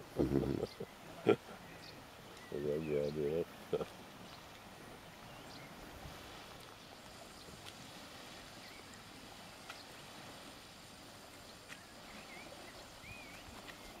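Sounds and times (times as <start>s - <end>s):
small waves lapping on shore: 0.0s - 14.0s
wind hiss: 0.0s - 14.0s
bird chirps: 11.7s - 14.0s.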